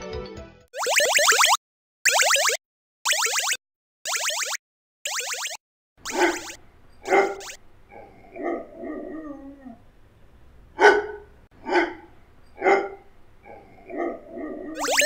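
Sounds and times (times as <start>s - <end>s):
dog barking: 6.1s - 6.5s, 7.1s - 8.8s, 10.8s - 14.8s.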